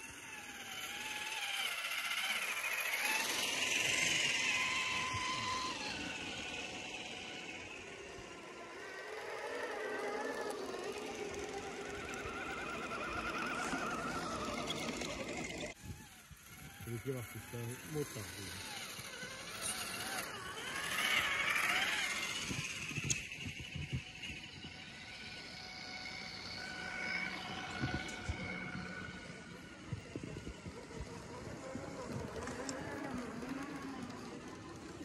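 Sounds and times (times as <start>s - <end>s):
electric motors whining: 0.0s - 35.0s.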